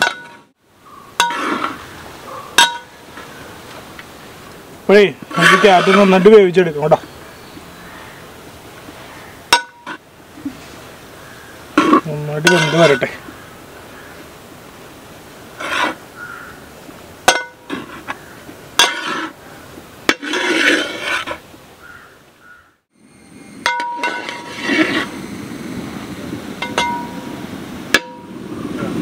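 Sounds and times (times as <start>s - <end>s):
ladle scraping through carrot: 5.3s - 6.3s, 20.1s - 21.4s, 24.2s - 25.1s.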